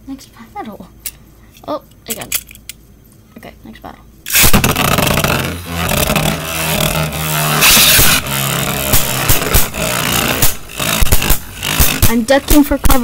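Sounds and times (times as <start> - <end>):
scraping clash of tops: 4.3 - 13.0
spinning tops whirring: 4.3 - 13.0.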